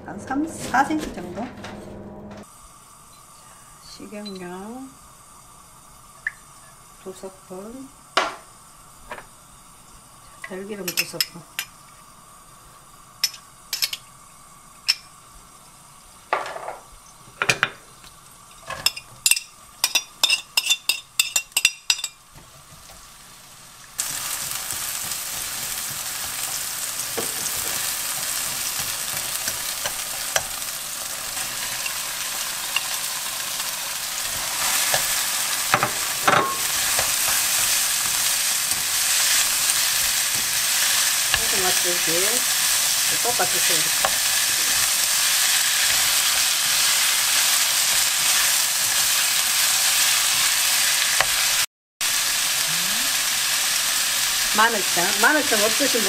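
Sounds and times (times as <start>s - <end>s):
onion sizzling in hot oil: 2.4s - 56.0s
utensils clinking against wok: 18.6s - 22.2s, 31.4s - 33.1s, 34.3s - 41.6s.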